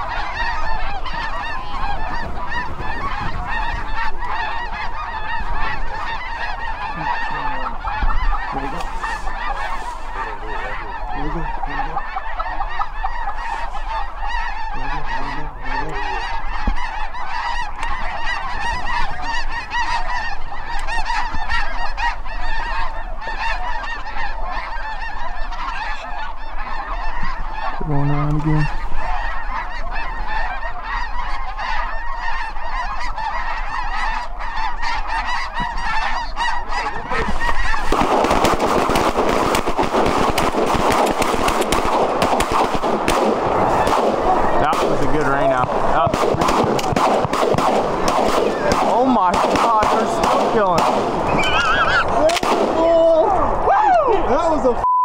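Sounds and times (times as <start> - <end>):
geese honking: 0.0 - 54.8
shotgun fire: 37.8 - 51.3, 52.3 - 52.8.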